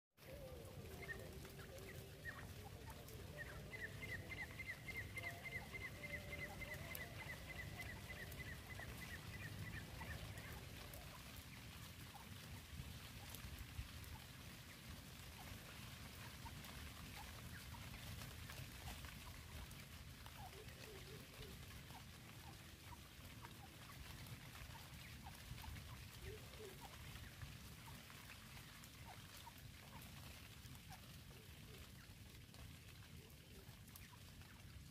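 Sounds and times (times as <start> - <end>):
francolin calls: 0.2 - 11.4.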